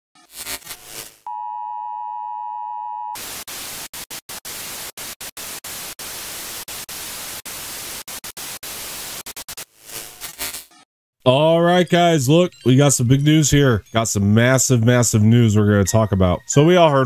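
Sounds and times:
white-noise static hissing: 0:03.2 - 0:10.2.

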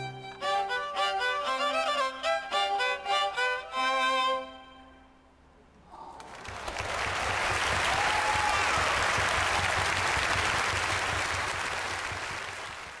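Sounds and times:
congregation applauding: 0:06.2 - 0:13.0.

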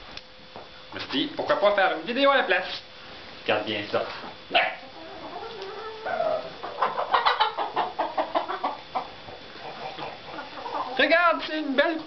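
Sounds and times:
hens clucking: 0:04.5 - 0:11.4.

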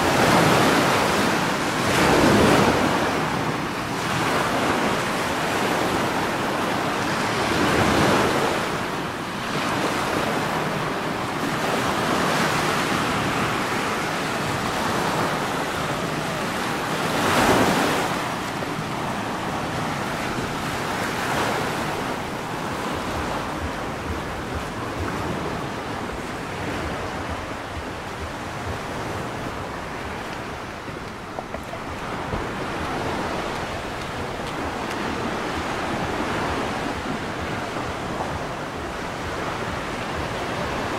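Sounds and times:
sea waves washing on shore: 0:00.0 - 0:40.9
wind on microphone: 0:00.0 - 0:40.9.

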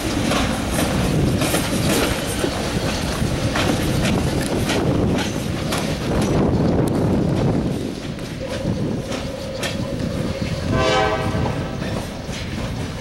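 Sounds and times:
train rumbling past: 0:00.0 - 0:13.0
wheels clacking over rail joints: 0:00.0 - 0:13.0
train horn blast: 0:10.7 - 0:12.0.

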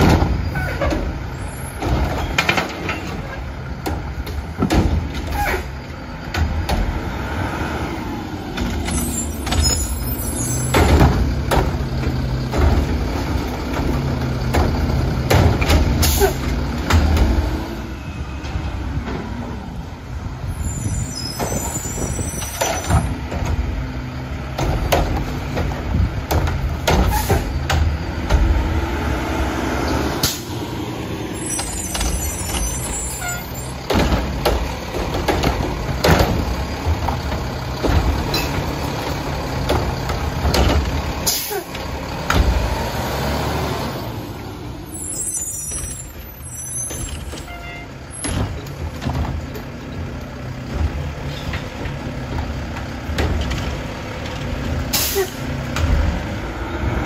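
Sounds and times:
diesel engine rumbling: 0:00.0 - 0:57.0
air brake hisses: 0:54.9 - 0:55.4.

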